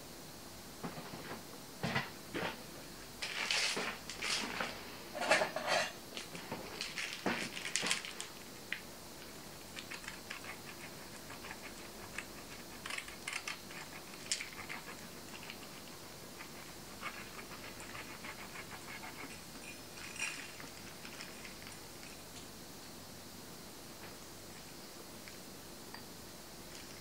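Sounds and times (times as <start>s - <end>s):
cheese grating on metal grater: 9.8s - 19.5s.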